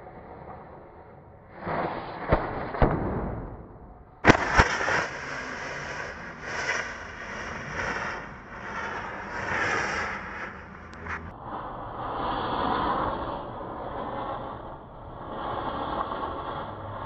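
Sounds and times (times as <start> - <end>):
sharp cracks: 2.0 - 11.4
continuing hiss: 4.3 - 11.3.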